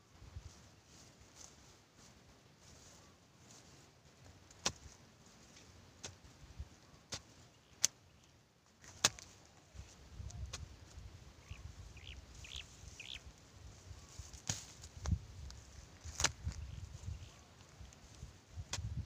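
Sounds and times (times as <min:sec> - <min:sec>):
digging stick striking soil: 0:04.5 - 0:05.0, 0:06.0 - 0:06.3, 0:07.1 - 0:08.0, 0:08.8 - 0:09.4, 0:14.3 - 0:15.2, 0:16.0 - 0:16.6, 0:18.7 - 0:19.0
bird chirps: 0:11.4 - 0:13.2.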